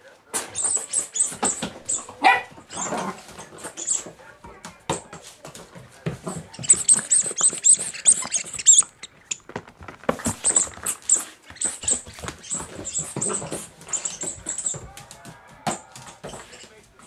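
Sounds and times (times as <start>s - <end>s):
claws clicking on hard floor: 0.3s - 17.0s
squeaky toy squeaks: 0.4s - 4.2s, 6.2s - 14.8s.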